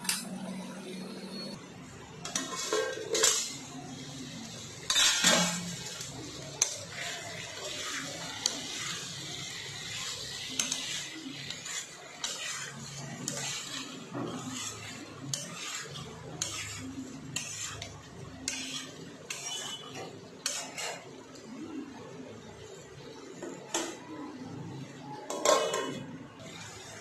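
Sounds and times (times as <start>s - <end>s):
metal spoon scraping a wok: 2.2s - 21.2s, 25.3s - 27.0s.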